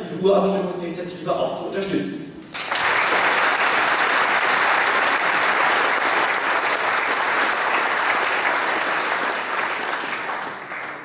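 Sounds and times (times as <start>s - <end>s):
large audience applauding: 2.5s - 11.0s.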